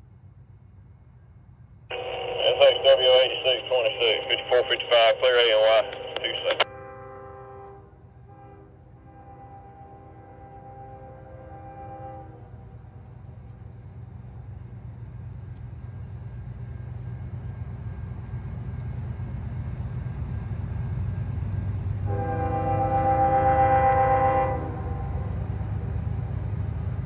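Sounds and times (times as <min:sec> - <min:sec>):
freight train rumble: 0:00.0 - 0:27.0
train horn blast: 0:06.6 - 0:12.9, 0:22.0 - 0:25.6.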